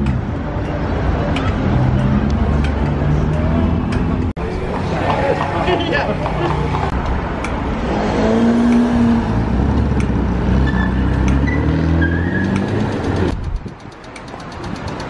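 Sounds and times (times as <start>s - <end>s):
cars passing: 0.0s - 15.0s
crossing signal ticking: 9.5s - 15.0s.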